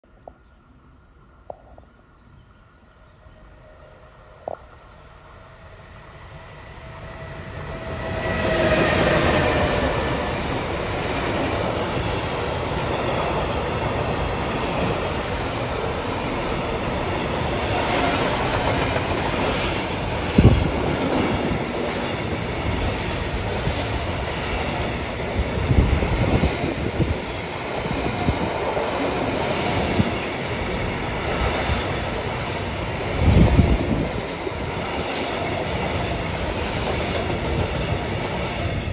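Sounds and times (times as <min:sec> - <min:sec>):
electric locomotive whine: 0:00.2 - 0:38.9.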